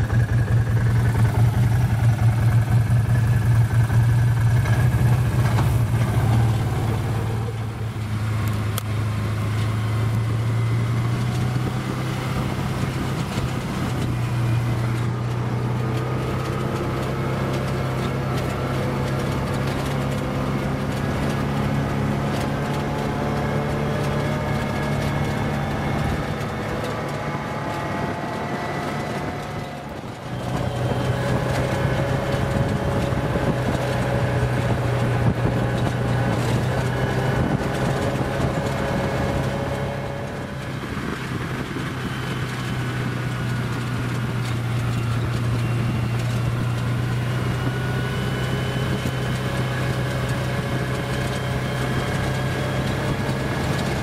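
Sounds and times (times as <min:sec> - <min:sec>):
off-road vehicle engine drone: 0:00.0 - 0:54.0
wind noise: 0:00.0 - 0:54.0.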